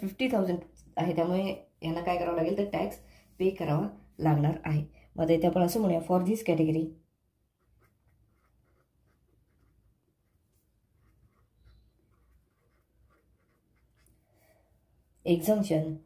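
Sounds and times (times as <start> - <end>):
pen scratching on paper: 7.4 - 14.3.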